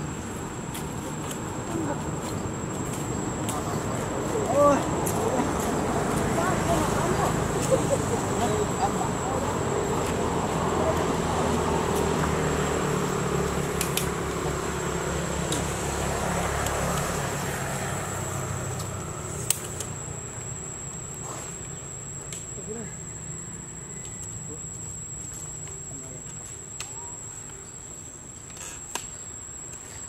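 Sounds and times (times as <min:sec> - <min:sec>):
insects droning: 0:00.0 - 0:30.0
sharp clicks: 0:13.8 - 0:14.2, 0:18.8 - 0:20.0.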